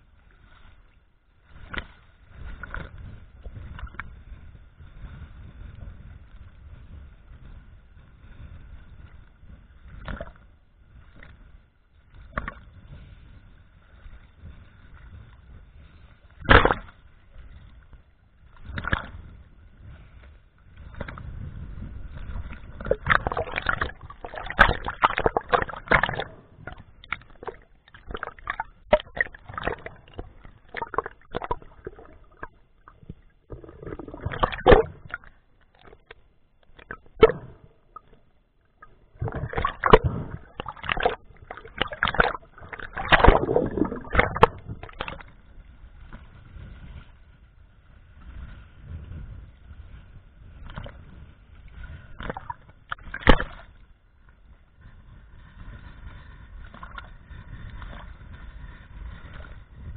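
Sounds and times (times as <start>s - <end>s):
low rumbling wash: 0.0s - 59.9s
muffled underwater gurgle: 1.4s - 59.9s
water slap: 16.4s - 16.9s, 53.1s - 53.6s
water splashing against camera housing: 16.4s - 16.9s, 22.6s - 38.2s, 38.8s - 45.3s, 52.2s - 53.7s.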